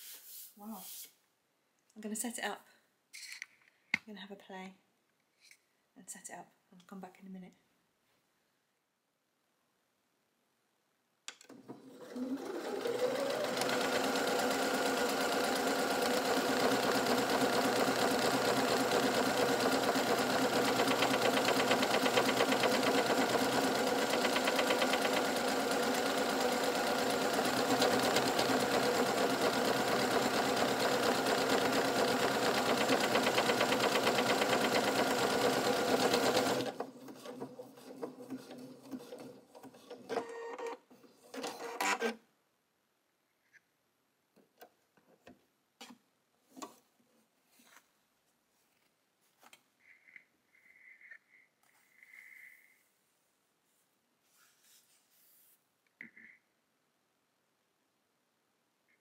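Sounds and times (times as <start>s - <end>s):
sewing machine motor whine: 11.7s - 40.6s.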